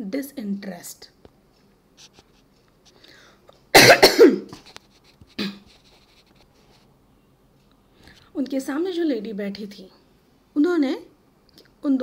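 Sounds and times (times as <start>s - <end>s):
woman coughing: 3.7s - 4.6s.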